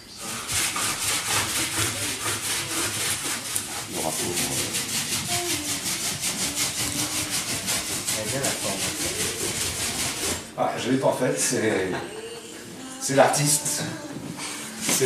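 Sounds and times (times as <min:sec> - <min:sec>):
rapid hand tool scraping: 0:00.2 - 0:10.6, 0:14.7 - 0:15.0.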